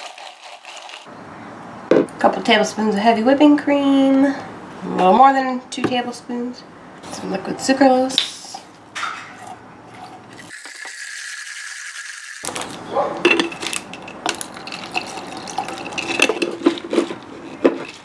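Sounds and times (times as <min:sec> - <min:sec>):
ice clinking against glass: 0:12.4 - 0:18.0
liquid sloshing in jar: 0:12.4 - 0:18.0.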